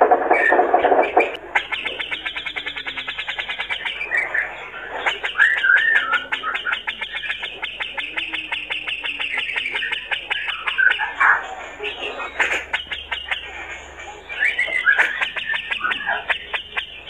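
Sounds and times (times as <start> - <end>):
bird singing chattering rattle: 0.2 - 17.0
bird wavering whistle: 0.3 - 13.4.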